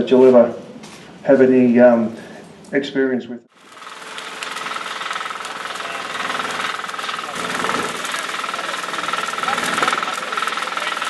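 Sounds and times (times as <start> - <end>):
grass fire crackling: 3.5 - 11.0.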